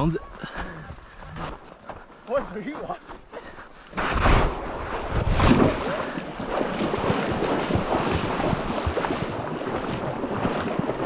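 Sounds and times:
shallow river water splashing: 3.9 - 11.0
wind rumbling on microphone: 4.0 - 11.0.

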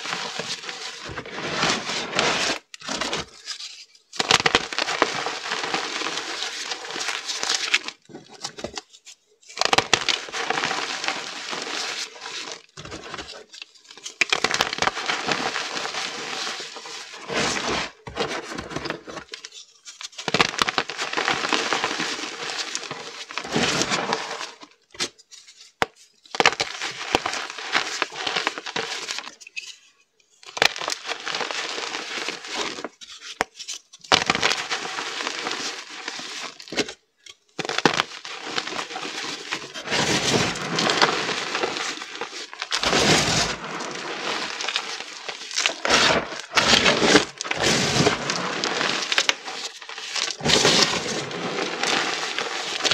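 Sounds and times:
chalk crunching and crumbling: 0.0 - 8.9, 9.6 - 24.7, 34.2 - 36.8, 37.6 - 52.9.

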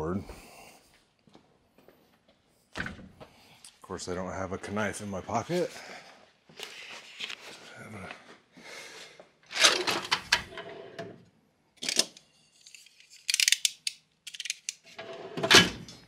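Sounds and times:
tools rattling in drawer: 9.5 - 10.6
metal drawer sliding open: 15.0 - 16.0.

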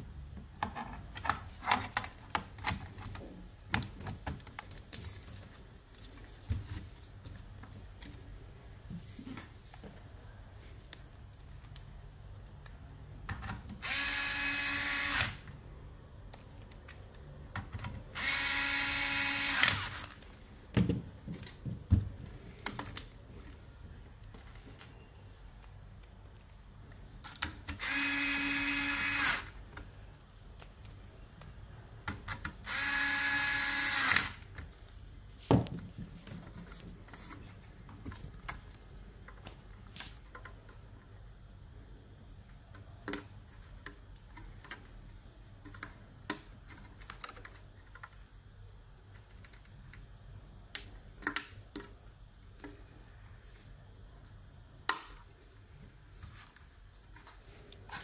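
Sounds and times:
power drill running: 13.8 - 15.4.

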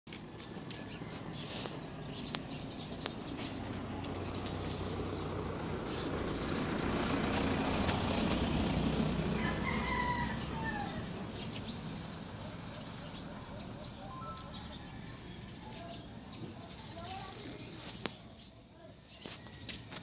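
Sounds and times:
vehicle rumble passing: 0.1 - 18.4
long crowing call: 9.2 - 11.2.

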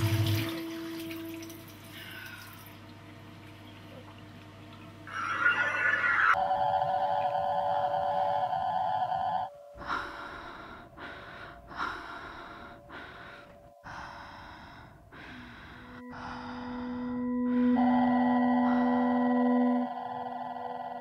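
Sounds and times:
low humming drone: 0.0 - 21.0
faint steady tone: 6.3 - 21.0.

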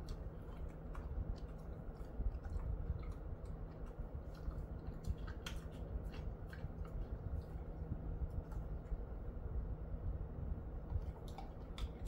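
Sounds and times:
dog chewing snack: 0.0 - 9.1, 10.8 - 12.0
low steady hum: 0.0 - 12.0.

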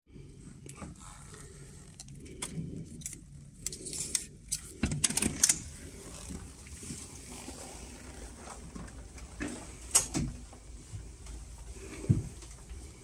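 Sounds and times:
door lock clicks and rattles: 4.8 - 5.6.

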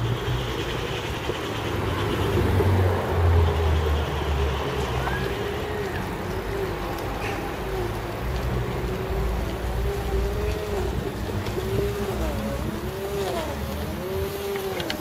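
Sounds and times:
bicycle rolling noise: 0.0 - 15.0
wind rumble on microphone: 7.7 - 15.0.

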